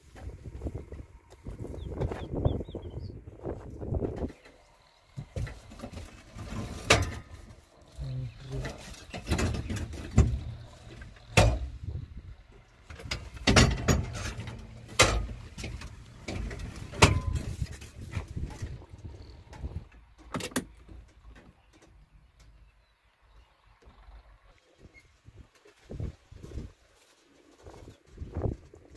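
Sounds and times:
clunks and rattles in vehicle cab: 0:05.2 - 0:07.6, 0:08.6 - 0:12.1, 0:12.8 - 0:18.9, 0:19.6 - 0:21.9.

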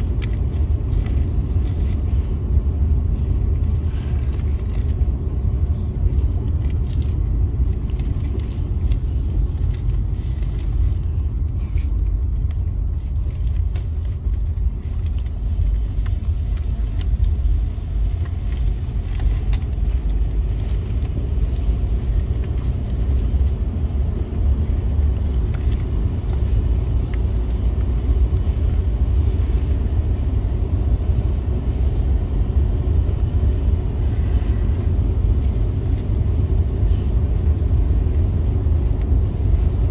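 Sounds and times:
engine and tyre rumble: 0:00.0 - 0:39.9.

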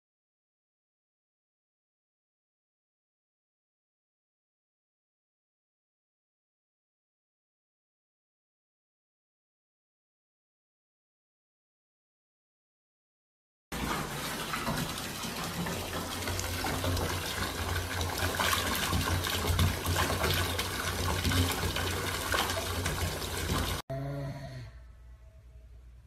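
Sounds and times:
tap water pouring and splashing: 0:13.7 - 0:23.8.

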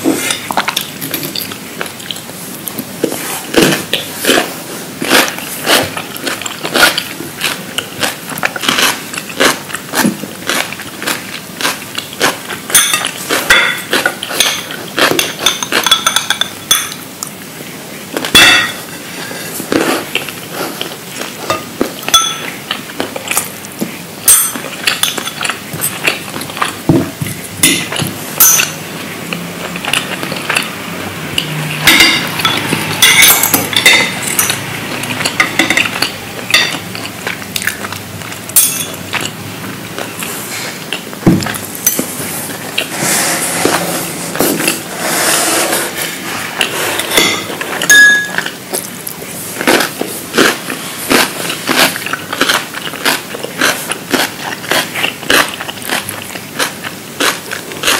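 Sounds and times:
crunchy chewing: 0:00.1 - 0:15.8, 0:46.0 - 0:57.9
cutlery clinking on dishes: 0:12.2 - 0:17.0, 0:18.2 - 0:18.9, 0:21.4 - 0:22.6, 0:24.3 - 0:26.2, 0:26.9 - 0:28.8, 0:31.4 - 0:37.0, 0:38.6 - 0:39.3, 0:46.6 - 0:48.6.

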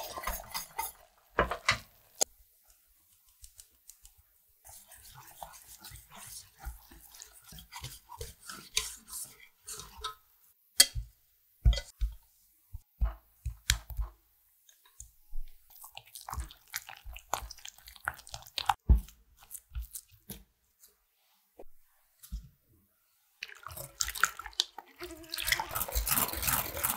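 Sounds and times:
whisk scraping in metal pot: 0:00.0 - 0:01.2, 0:04.6 - 0:10.2, 0:25.2 - 0:26.9
batter squishing while stirred: 0:00.0 - 0:01.3, 0:02.2 - 0:10.2, 0:11.0 - 0:20.9, 0:23.3 - 0:26.9.

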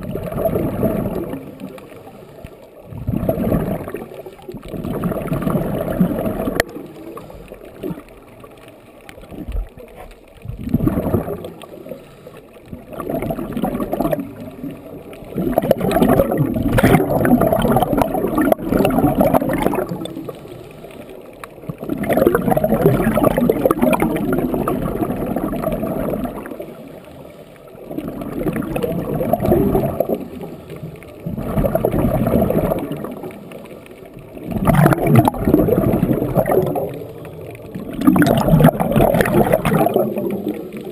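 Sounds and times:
exhaled bubbles underwater: 0:00.0 - 0:40.9.

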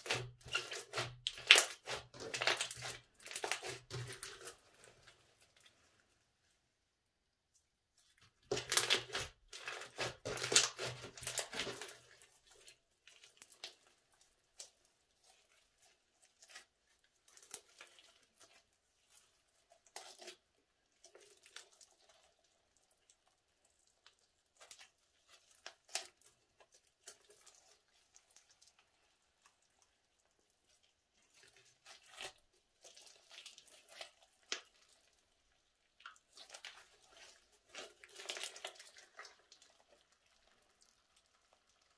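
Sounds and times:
slime crackling and tearing: 0:00.0 - 0:04.8, 0:08.5 - 0:12.2, 0:36.1 - 0:41.8.

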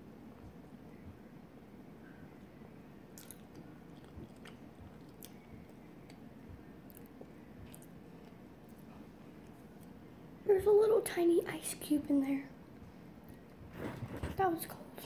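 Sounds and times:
person chewing food: 0:03.1 - 0:09.9.

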